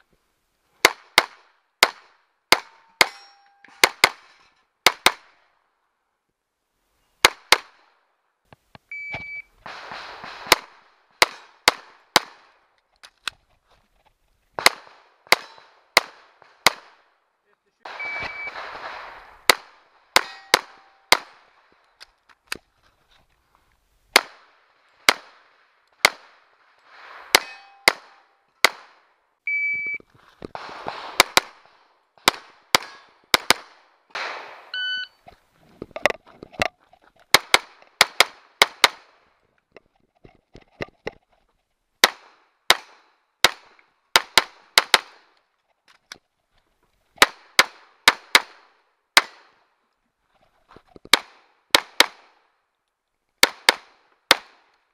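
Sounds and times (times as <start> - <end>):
steel target ringing: 2.8 - 3.8, 20.2 - 21.1, 27.4 - 28.2
pistol shots: 9.6 - 12.6, 14.6 - 17.1, 17.9 - 21.6, 24.1 - 26.4, 27.3 - 29.1, 30.6 - 34.7, 37.3 - 39.2, 47.2 - 49.6.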